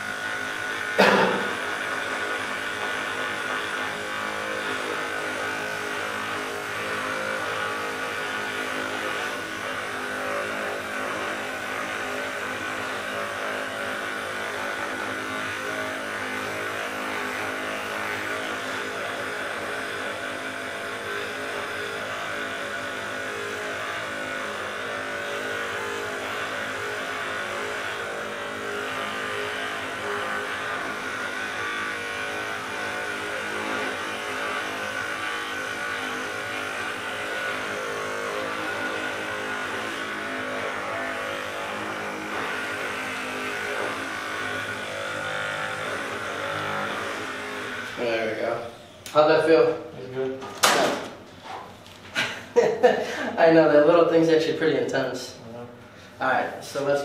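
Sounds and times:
massage gun motor whine: 0:00.0 - 0:57.0.

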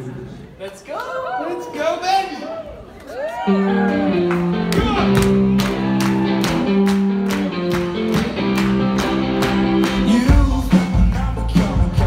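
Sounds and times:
live band playing upbeat song: 0:03.7 - 0:12.0
held keyboard chords: 0:03.8 - 0:12.0
audience clapping along: 0:03.9 - 0:11.5
bass and drum beat: 0:04.4 - 0:12.0.

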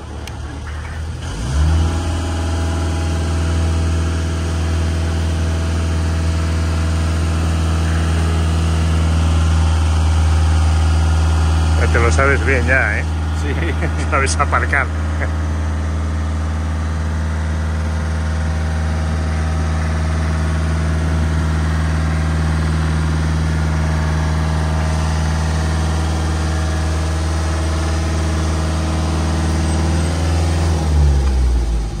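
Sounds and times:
machine engine idling: 0:00.0 - 0:32.0.

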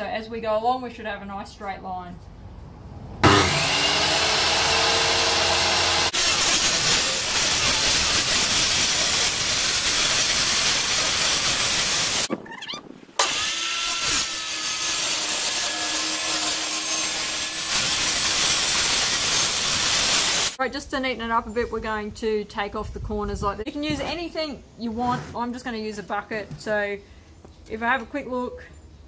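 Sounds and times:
circular saw cutting plywood: 0:03.2 - 0:12.3, 0:13.2 - 0:20.6.

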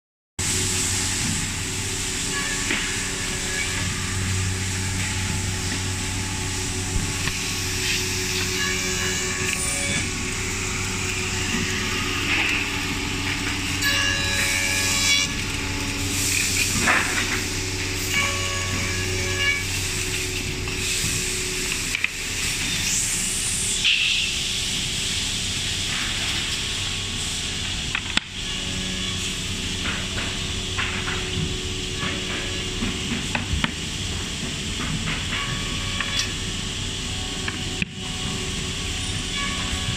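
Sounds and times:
loud hiss: 0:00.4 - 0:27.6
machine whining tones: 0:00.4 - 0:39.9
machine motor hum: 0:00.5 - 0:23.8.

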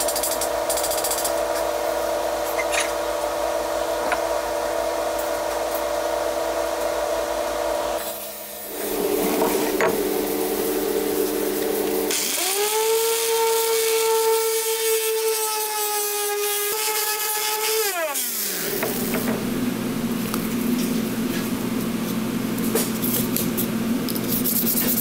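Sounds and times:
power tool grinding steel: 0:11.8 - 0:19.2.

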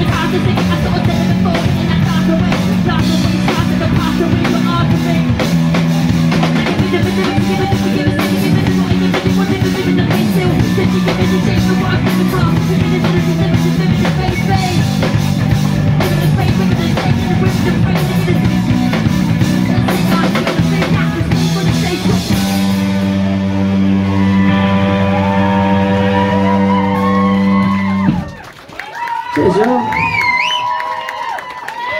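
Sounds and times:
person singing: 0:00.0 - 0:05.5, 0:06.5 - 0:23.3
drum kit: 0:00.0 - 0:28.4
bass guitar: 0:00.0 - 0:28.5
electric guitar: 0:00.0 - 0:28.5.

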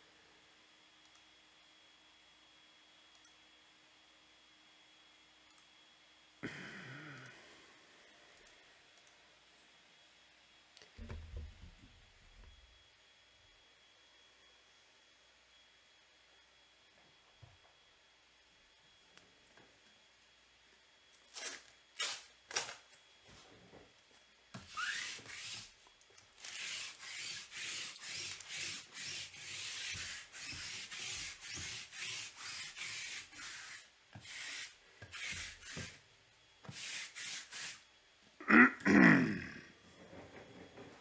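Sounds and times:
lint roller rubbing on cloth: 0:24.6 - 0:25.8, 0:26.4 - 0:36.0, 0:36.7 - 0:37.8.

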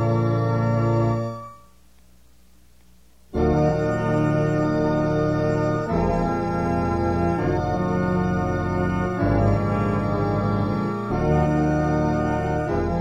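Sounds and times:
organ chords: 0:00.0 - 0:01.9, 0:03.1 - 0:13.0.

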